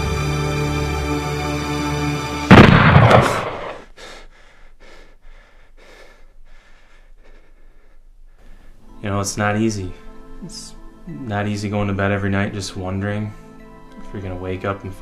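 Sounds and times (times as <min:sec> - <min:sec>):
music: 0:00.0 - 0:02.5, 0:08.8 - 0:15.0
handgun shot: 0:02.5 - 0:03.8
quick faint breathing: 0:03.8 - 0:08.9.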